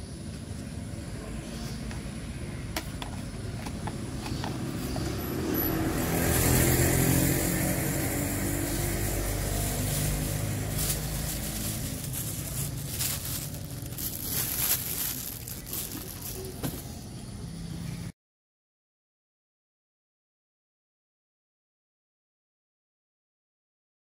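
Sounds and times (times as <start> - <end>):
traffic noise: 0.0 - 18.2
vehicle engine passing by: 4.0 - 18.1.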